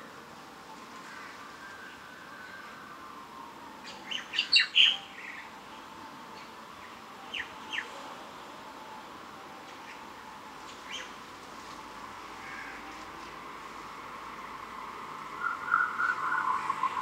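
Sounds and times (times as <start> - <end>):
faint background noise: 0.0 - 17.0
bird chirping: 3.8 - 8.0, 9.8 - 11.2, 15.3 - 17.0.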